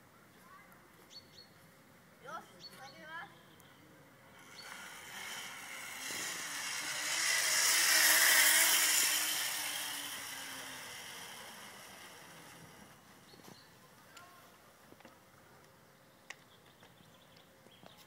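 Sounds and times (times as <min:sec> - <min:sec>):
zip-line pulley whirring on cable: 0:04.3 - 0:13.7.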